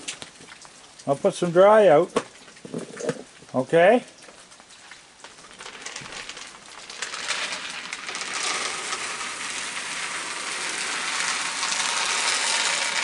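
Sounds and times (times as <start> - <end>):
kibble clattering on wooden boards: 5.3 - 13.0.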